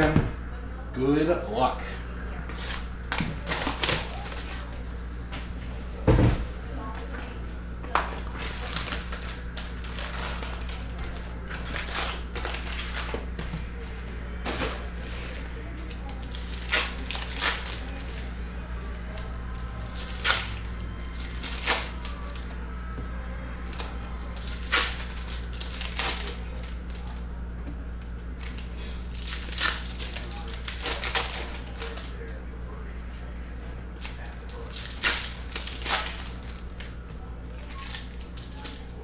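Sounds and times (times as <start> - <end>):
steady low hum: 0.0 - 39.0
foil wrappers tearing and crinkling: 2.5 - 4.7, 8.2 - 13.9, 14.5 - 22.5, 23.6 - 27.2, 28.3 - 32.4, 33.9 - 39.0.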